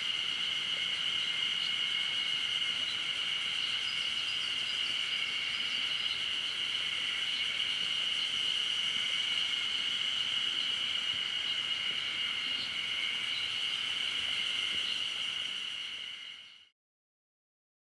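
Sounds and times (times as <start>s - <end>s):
insects chorus: 0.0s - 16.7s.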